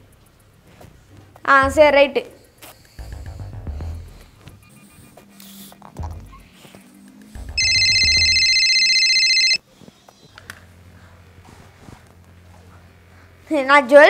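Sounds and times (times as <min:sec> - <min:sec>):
mobile phone ringtone trill: 0:07.6 - 0:09.6.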